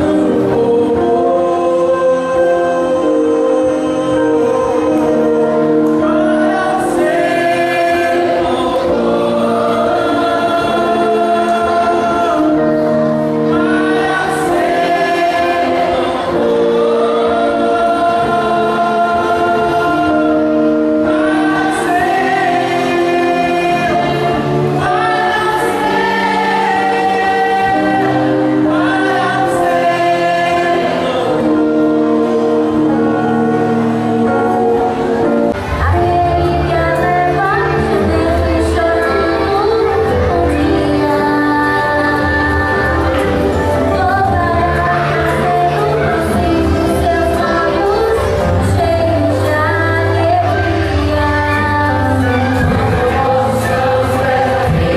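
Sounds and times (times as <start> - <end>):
man singing into microphone: 0.0 - 35.0
amplified backing music: 0.0 - 54.9.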